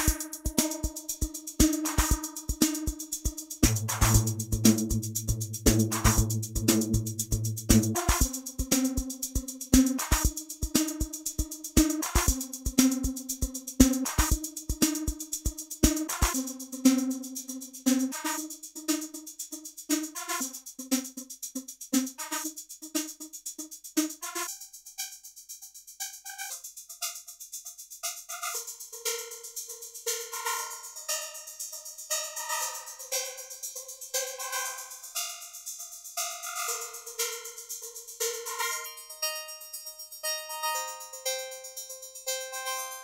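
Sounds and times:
resonant pitched drum loop: 0.0 - 39.2, 39.8 - 43.0
low kick drum thumps: 3.6 - 8.3.

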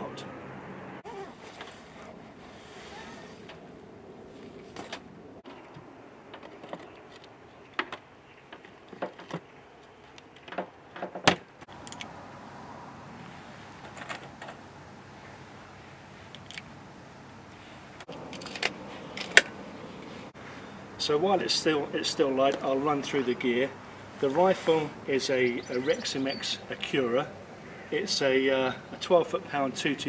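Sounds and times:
faint background noise: 0.0 - 30.0
light clicks and knocks: 4.7 - 12.1.

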